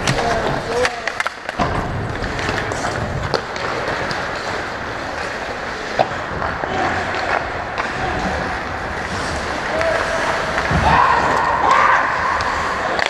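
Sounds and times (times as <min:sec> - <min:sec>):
skates scraping ice: 0:00.0 - 0:13.0
distant shouts: 0:09.6 - 0:12.8.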